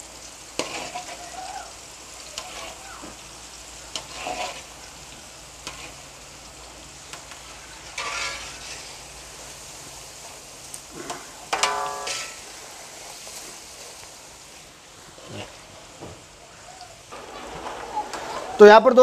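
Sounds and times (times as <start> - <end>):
chips sizzling in oil: 0.0 - 19.0
metal skimmer scraping pan: 4.0 - 4.6, 8.0 - 8.9, 10.9 - 12.5.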